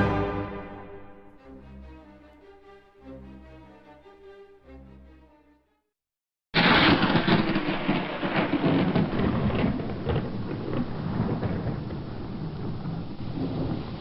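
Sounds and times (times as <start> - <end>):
music: 0.0 - 6.0
thunderclap rolling: 6.6 - 14.0
heavy rain hissing: 7.8 - 14.0.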